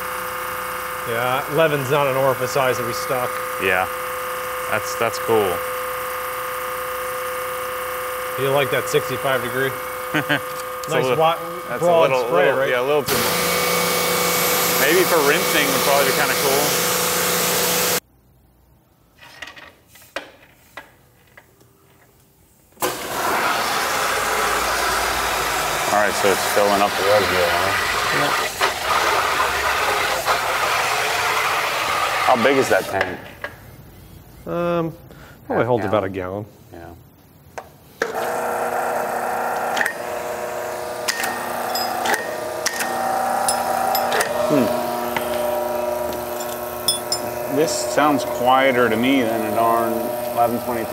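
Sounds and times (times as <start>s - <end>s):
pressure washer hissing: 0.0s - 18.0s, 22.8s - 33.2s, 38.0s - 50.9s
pressure washer click: 41.0s - 50.7s.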